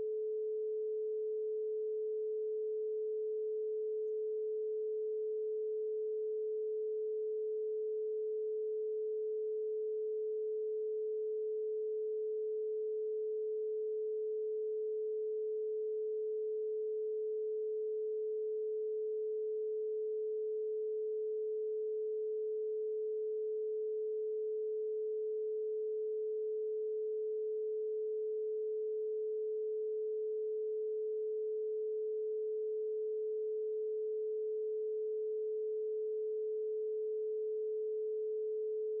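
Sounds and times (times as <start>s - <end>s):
steady sine tone: 0.0s - 39.0s.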